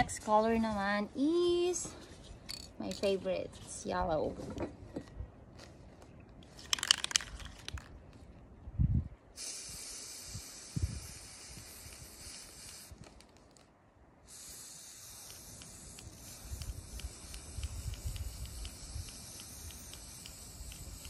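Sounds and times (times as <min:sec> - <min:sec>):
spray can rattle: 0:06.6 - 0:07.9, 0:09.8 - 0:12.9, 0:14.3 - 0:21.0
spray-paint can hissing: 0:09.4 - 0:13.2, 0:14.3 - 0:21.0.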